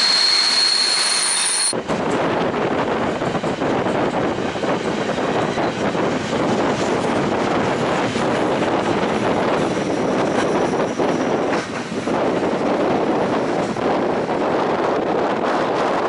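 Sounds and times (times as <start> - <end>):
faint wheel squeal: 0.0 - 1.7
train rumble and rattle: 0.0 - 16.0.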